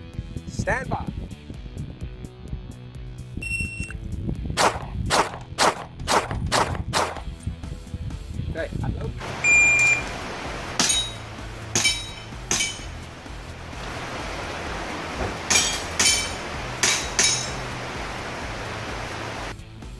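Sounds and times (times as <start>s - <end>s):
airsoft pistol shots: 4.6s - 7.2s.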